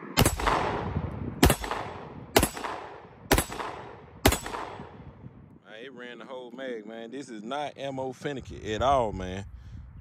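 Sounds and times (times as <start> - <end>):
pistol shots with echo: 0.2 - 5.1.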